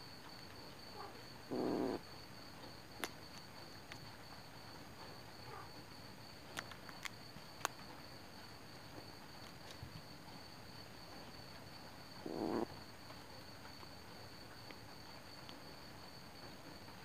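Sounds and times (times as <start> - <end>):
high insect chirping: 0.0 - 17.0
kitten growling: 1.5 - 2.0, 12.2 - 12.7.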